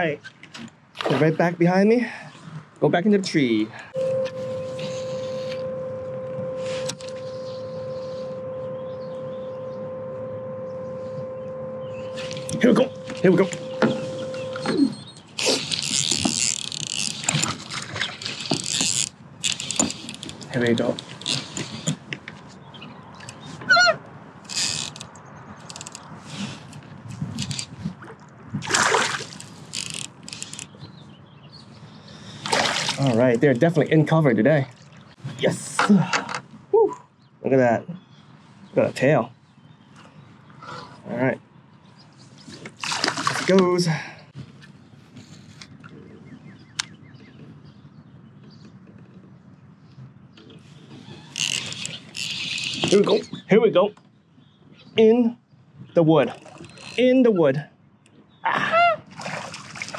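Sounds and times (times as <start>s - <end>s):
steady tone: 3.9s - 15.2s
low rumbling noise: 3.9s - 15.4s
fishing reel clicking and cranking: 15.4s - 21.8s, 24.5s - 26.0s, 29.4s - 30.7s, 51.3s - 53.2s, 56.5s - 57.0s
water splashing: 27.9s - 29.6s, 32.4s - 33.2s, 42.7s - 43.8s, 59.1s - 59.9s.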